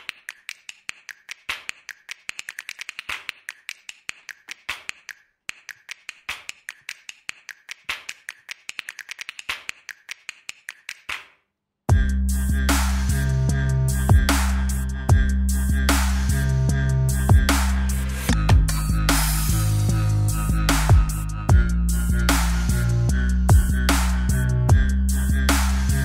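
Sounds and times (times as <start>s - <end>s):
keyboard typing: 0.0s - 11.2s.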